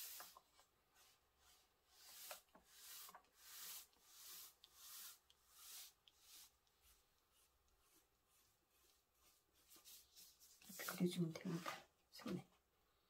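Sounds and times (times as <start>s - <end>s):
pencil scratching on paper: 0.0s - 11.9s.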